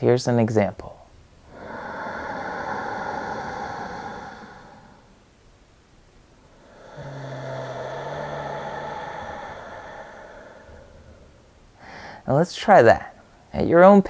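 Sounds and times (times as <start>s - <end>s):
faint low throat hum: 1.1s - 12.2s
rushing breaths through throat: 1.4s - 5.4s, 6.4s - 12.3s.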